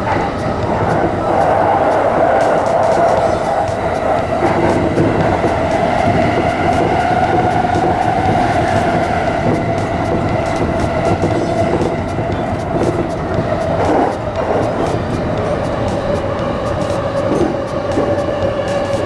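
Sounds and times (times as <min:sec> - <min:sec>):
train mid-pitched hum: 0:00.0 - 0:19.0
train wheel and track rumble: 0:00.0 - 0:19.0.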